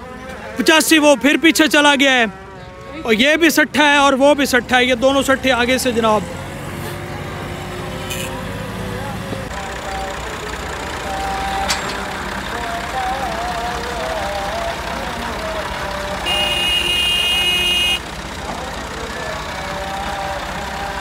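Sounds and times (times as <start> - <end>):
diesel tractor engines idling: 0.0 - 21.0
high steady horn-like tone: 8.0 - 8.4, 16.2 - 18.1.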